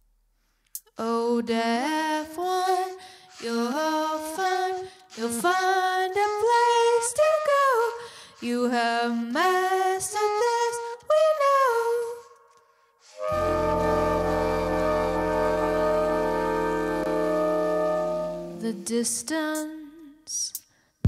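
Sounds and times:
woman singing without words: 0:00.9 - 0:12.3, 0:13.4 - 0:20.5.

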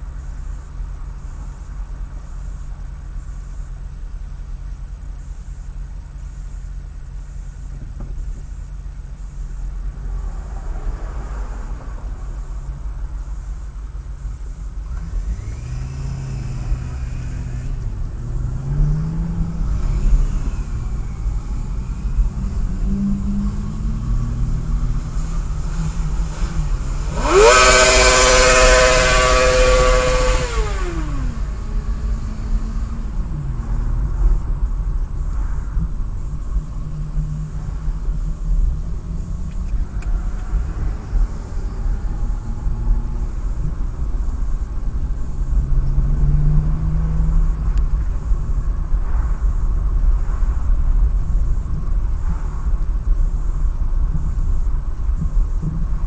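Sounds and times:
car and traffic rumble: 0:00.0 - 0:56.0
motorcycle revving loudly: 0:14.9 - 0:33.8.

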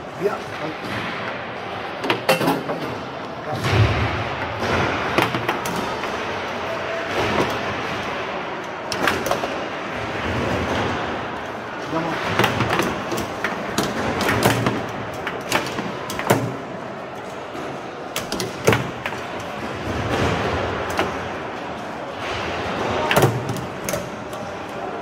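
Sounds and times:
steady background noise: 0:00.0 - 0:25.0
foosball ball clacking: 0:12.2 - 0:16.7, 0:18.1 - 0:21.4.

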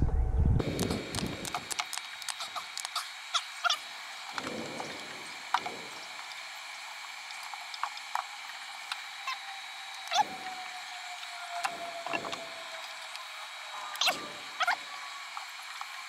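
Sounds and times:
small clicks and snaps: 0:00.6 - 0:04.5.

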